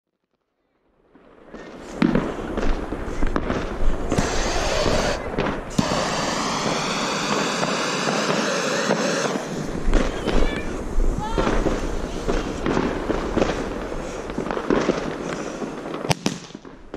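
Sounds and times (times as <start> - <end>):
jet torch lighter hissing: 4.1 - 9.8
sharp pops: 4.1 - 10.7.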